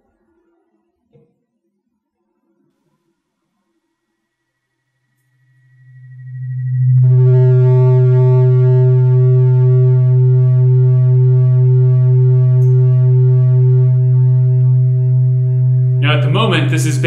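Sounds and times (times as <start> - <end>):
pulsing synthesizer drone: 5.8 - 17.0.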